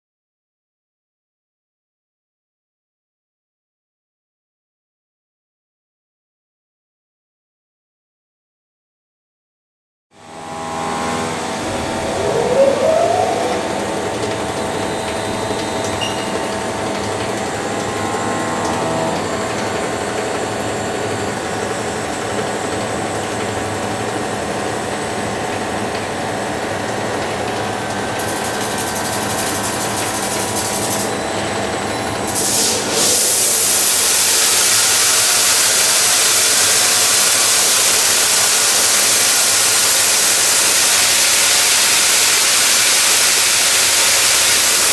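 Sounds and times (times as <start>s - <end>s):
polishing machine hum and whine: 10.2s - 23.2s.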